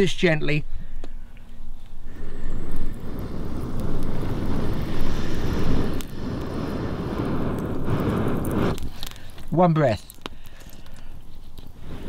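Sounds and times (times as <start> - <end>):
breath blown through a metal tube: 2.0 - 9.4.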